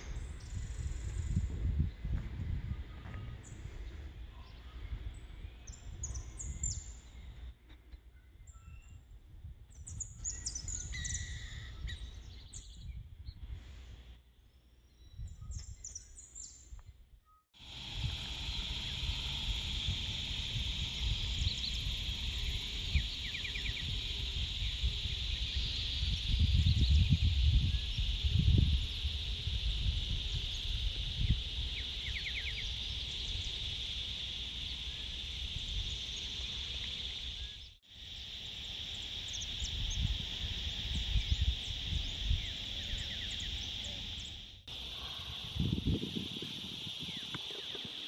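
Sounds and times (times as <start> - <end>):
steady high-pitched hiss: 0.0 - 7.7, 17.6 - 48.0
wind rumble on microphone: 0.0 - 37.7, 38.8 - 48.0
birds chirping: 18.2 - 27.2, 40.8 - 45.0.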